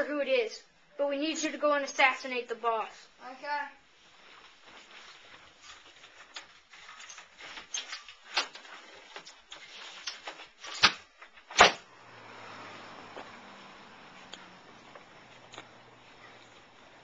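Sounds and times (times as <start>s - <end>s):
faint steady hiss: 0.0s - 17.0s
footsteps in a house: 3.9s - 7.7s.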